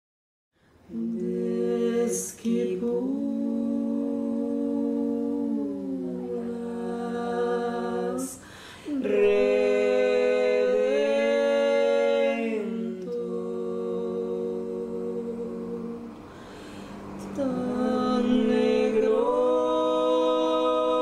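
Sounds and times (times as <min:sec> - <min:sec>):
women singing unaccompanied: 0:00.8 - 0:21.0
singer breath: 0:08.3 - 0:09.0, 0:16.2 - 0:17.2.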